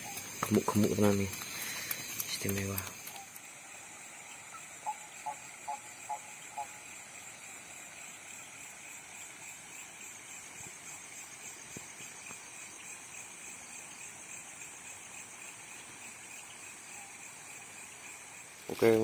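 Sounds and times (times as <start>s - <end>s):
night insects chirping: 0.0s - 19.0s.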